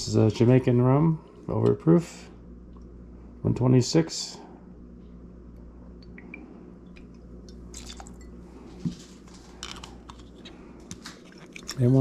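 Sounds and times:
low steady hum: 0:00.0 - 0:12.0
liquid pouring into a glass: 0:07.5 - 0:08.4.

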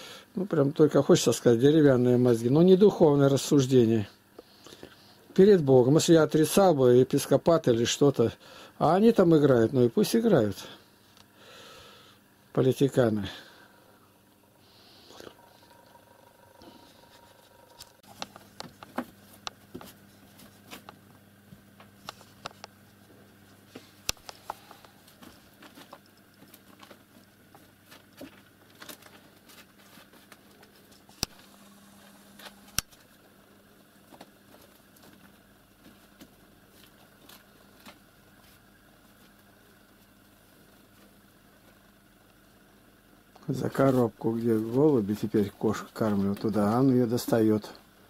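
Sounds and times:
faint low hum: 0:00.0 - 0:48.0.

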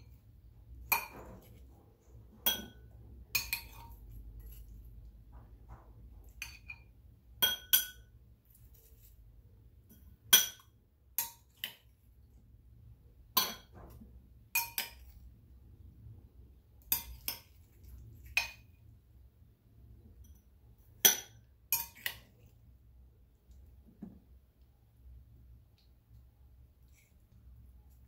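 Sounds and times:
metal spoon clinking glass bowl: 0:02.4 - 0:04.7, 0:06.2 - 0:08.2, 0:14.6 - 0:15.2, 0:16.9 - 0:18.7, 0:21.0 - 0:22.3.

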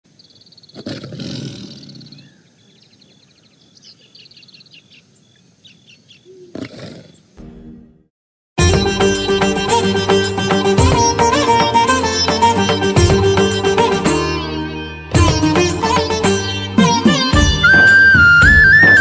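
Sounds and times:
small birds chirping: 0:00.1 - 0:07.4
tiger roaring: 0:00.7 - 0:02.3, 0:06.3 - 0:07.2.

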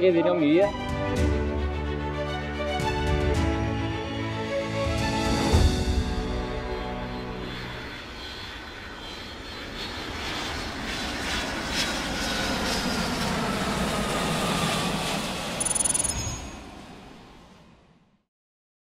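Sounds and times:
music: 0:00.0 - 0:07.9
jet airliner taking off: 0:04.6 - 0:18.2
short high-pitched tone: 0:15.6 - 0:16.7.

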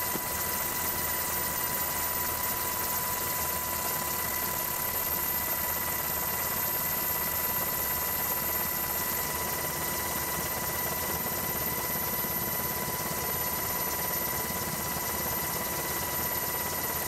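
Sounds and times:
thin steady whine: 0:00.0 - 0:17.0.

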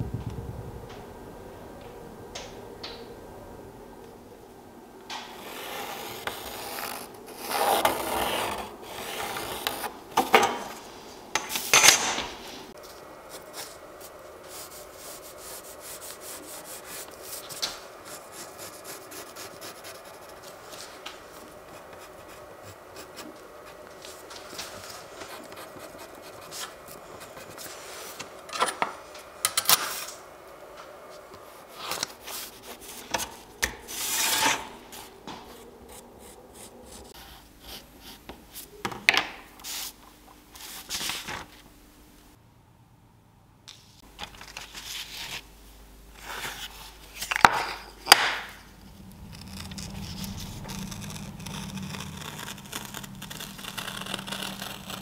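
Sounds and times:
pencil scratching on paper: 0:13.3 - 0:24.2, 0:24.9 - 0:28.0.

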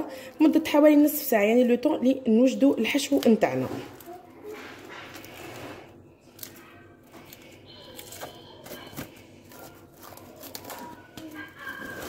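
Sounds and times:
cling film crinkling: 0:03.0 - 0:12.0.

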